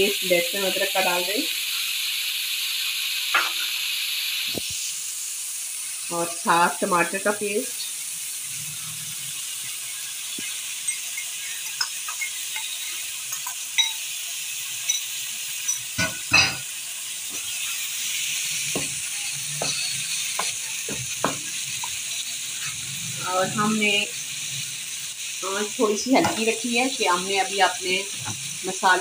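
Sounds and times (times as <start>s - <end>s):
meat sizzling in a frying pan: 0.0s - 29.0s
wooden spoon scraping a pan: 18.7s - 21.6s.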